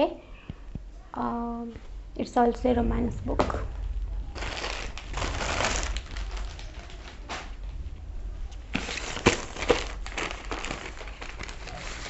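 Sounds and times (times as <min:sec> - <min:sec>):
plastic wrapping rustling: 0:02.9 - 0:12.0.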